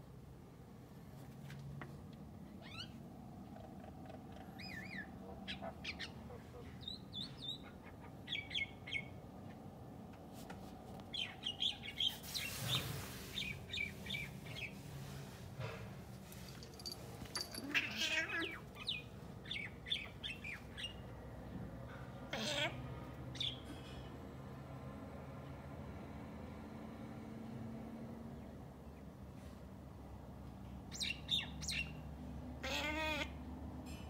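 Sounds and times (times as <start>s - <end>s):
rustling hiss: 12.0s - 13.7s.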